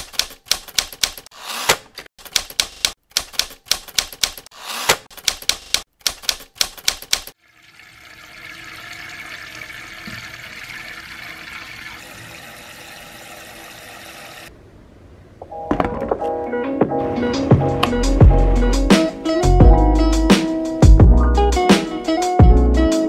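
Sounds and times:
typewriter key clicks: 0.0s - 7.4s
tap water filling metal kettle: 7.4s - 14.5s.

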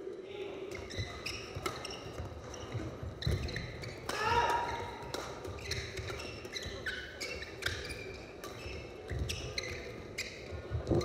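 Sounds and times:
racket hitting shuttlecock: 0.7s - 2.6s, 3.2s - 9.8s
shoes squeaking on court: 0.7s - 11.0s.

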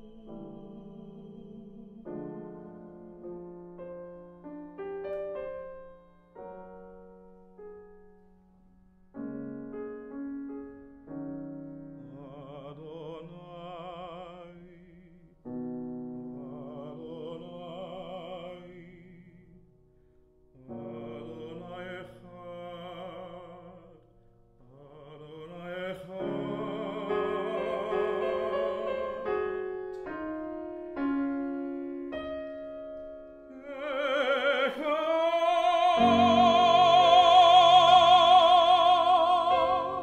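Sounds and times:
man singing classical with vibrato: 0.0s - 7.0s, 10.2s - 40.0s
grand piano chords: 0.0s - 40.0s.

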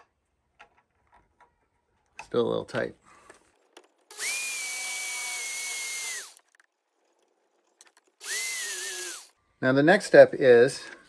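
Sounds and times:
power tool cutting plastic pipe: 4.1s - 6.5s, 8.2s - 9.4s.

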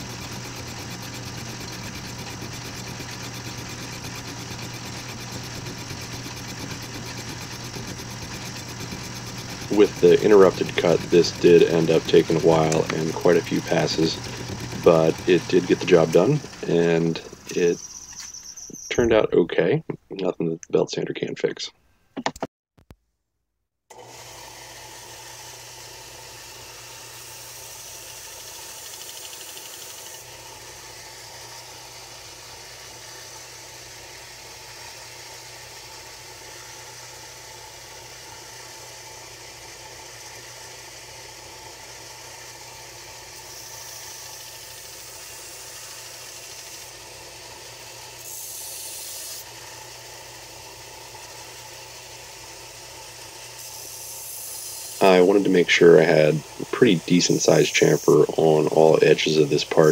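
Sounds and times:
metal grinding hiss on belt: 0.0s - 19.0s, 48.1s - 49.5s, 53.5s - 59.9s
belt sander motor humming: 0.0s - 19.2s, 23.9s - 59.9s.

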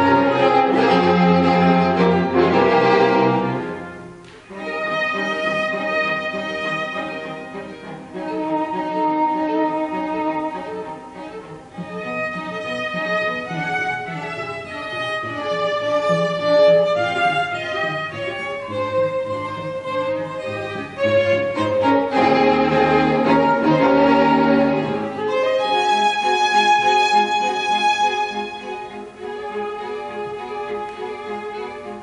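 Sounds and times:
string quartet playing: 0.0s - 32.0s.

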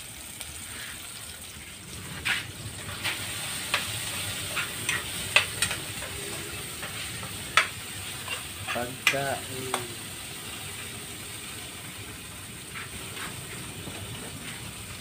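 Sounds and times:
food sizzling in a pan: 0.0s - 15.0s
spatula scraping a pan: 2.2s - 9.2s.

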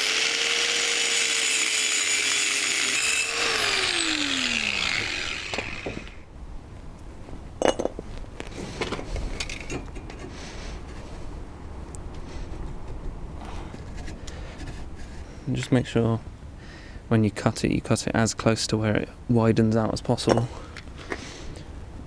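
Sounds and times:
angle grinder cutting steel: 0.0s - 6.2s
grinder motor winding down: 0.0s - 6.2s
metal pipe knocks and scrapes: 7.6s - 8.0s, 20.3s - 20.6s.

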